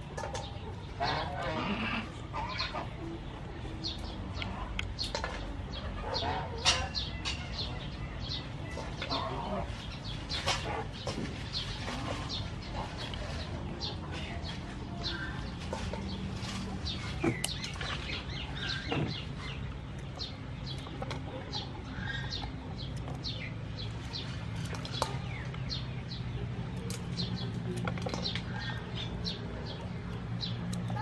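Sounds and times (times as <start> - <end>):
small birds chirping: 0.0 - 31.0
scissors snipping: 26.7 - 31.0.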